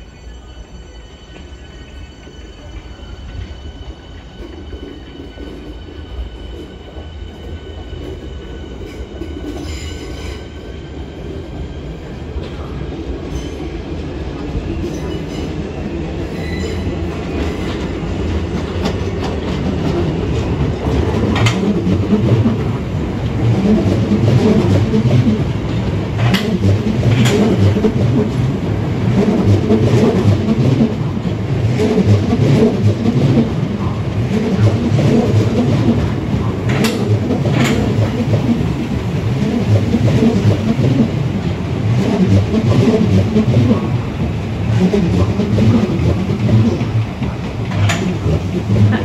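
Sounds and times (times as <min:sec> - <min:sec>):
rumble of train wheels on rail: 0:00.0 - 0:49.0
wheel clicks and squeals: 0:14.7 - 0:49.0.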